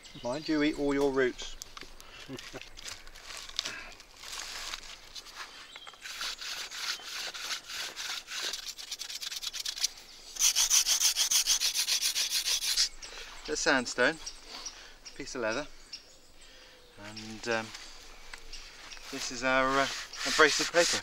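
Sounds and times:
stone rubbing on wood: 6.0s - 12.9s, 19.1s - 21.0s.

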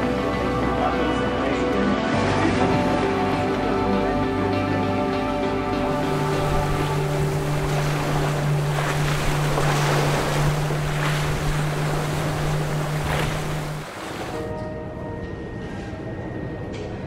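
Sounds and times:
boat engine drone: 0.0s - 17.0s
rushing splashing water: 5.8s - 14.5s
wind buffeting microphone: 5.9s - 14.4s.

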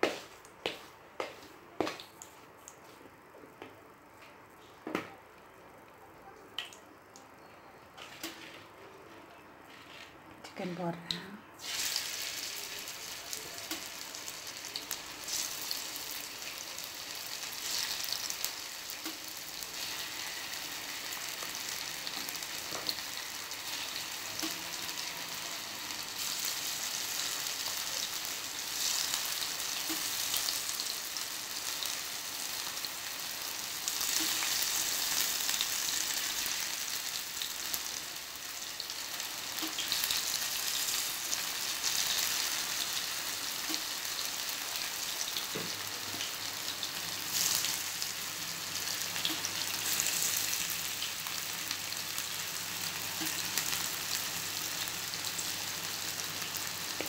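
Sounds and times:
chicken sizzling in hot oil: 11.6s - 57.0s.

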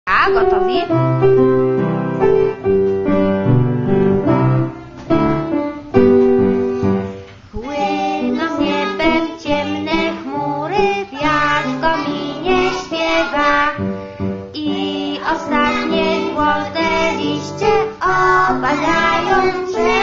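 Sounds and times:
piano playing: 0.1s - 20.0s
person singing: 14.6s - 20.0s.

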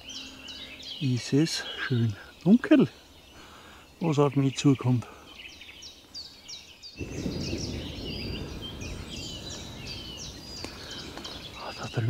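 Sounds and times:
songbirds singing: 0.0s - 12.0s
distant thunder rumble: 7.0s - 12.0s.

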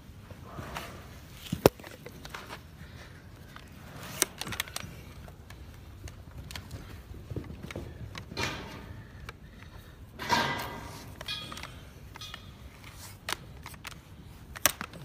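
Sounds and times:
hoof cracking and clicking: 1.4s - 10.0s.

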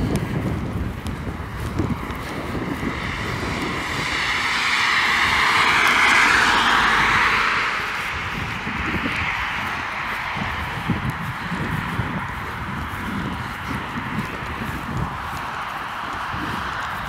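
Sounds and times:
car driving past: 2.9s - 10.8s.

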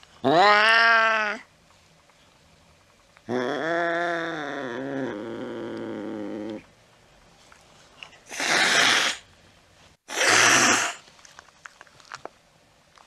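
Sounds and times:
cat yowling: 0.2s - 1.5s
cat hissing: 8.2s - 9.3s, 10.1s - 11.0s.

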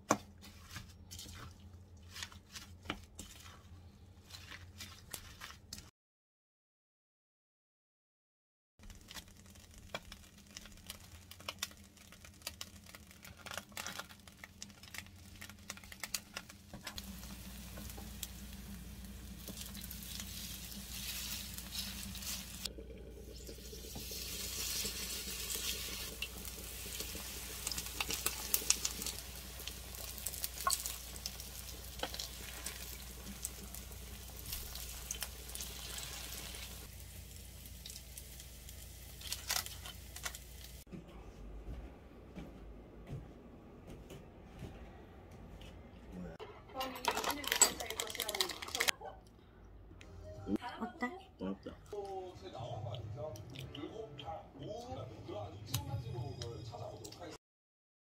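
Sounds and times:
pancake sizzling in hot oil: 8.8s - 40.9s.

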